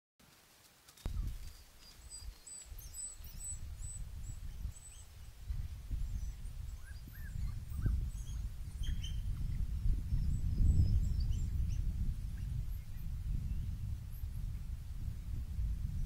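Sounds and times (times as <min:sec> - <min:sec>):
wild dogs twittering chirps: 0:06.0 - 0:09.6.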